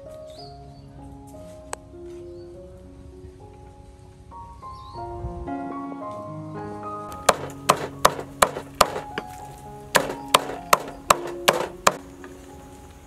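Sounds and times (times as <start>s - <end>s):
knife chopping meat on wooden board: 7.3s - 9.1s, 10.0s - 12.0s.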